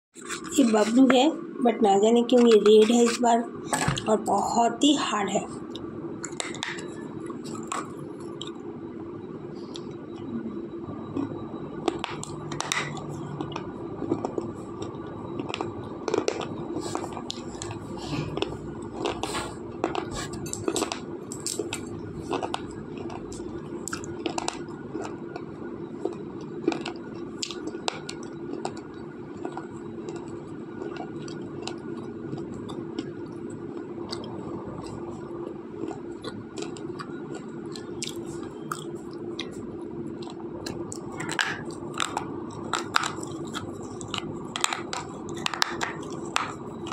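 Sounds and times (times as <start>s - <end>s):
pencil crunching between teeth: 40.2s - 46.9s.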